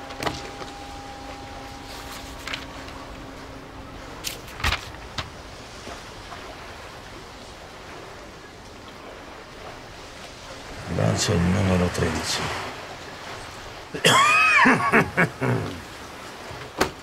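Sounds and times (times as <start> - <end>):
low background hiss: 0.0 - 16.9
book pages rustling: 1.8 - 3.0, 4.2 - 5.4.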